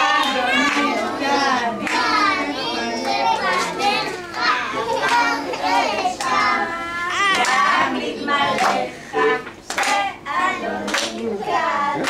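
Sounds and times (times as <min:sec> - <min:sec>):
children calling out: 0:00.0 - 0:07.9
hand claps: 0:01.8 - 0:02.1, 0:07.3 - 0:07.7, 0:08.5 - 0:08.8, 0:09.5 - 0:10.1, 0:10.9 - 0:11.2.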